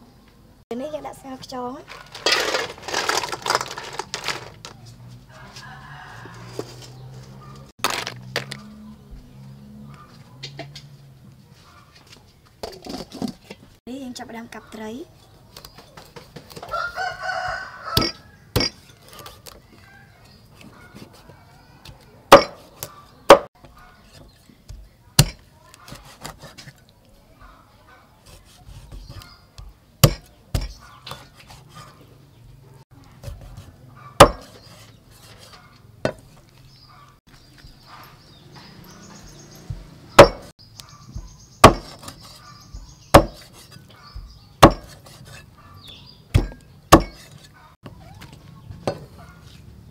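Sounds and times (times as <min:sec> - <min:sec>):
cleaver chopping fish on wood: 0:18.0 - 0:18.8, 0:22.3 - 0:23.5, 0:24.7 - 0:26.6, 0:28.3 - 0:31.6, 0:33.2 - 0:34.6, 0:39.7 - 0:40.5, 0:41.6 - 0:42.4, 0:43.1 - 0:45.4, 0:46.3 - 0:47.5.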